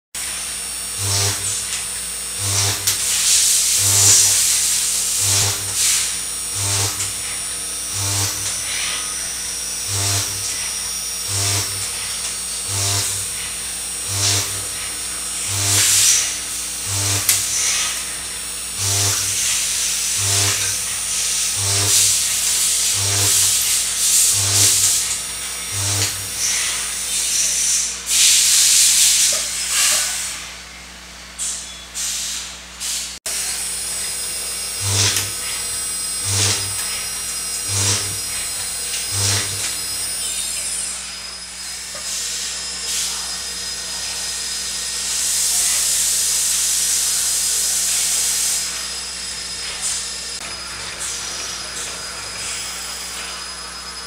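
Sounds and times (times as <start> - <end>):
coolant spray hissing: 2.4 - 30.3.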